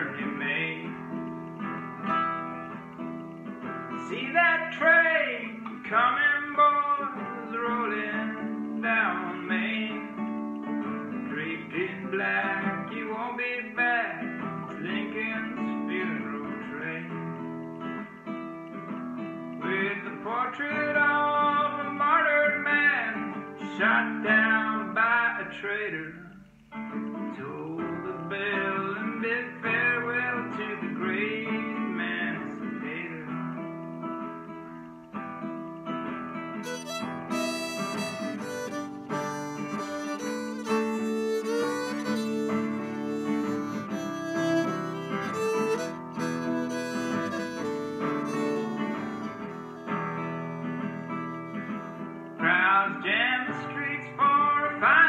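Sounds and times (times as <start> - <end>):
classical guitar strummed: 0.0 - 55.0
fiddle playing: 36.6 - 52.2.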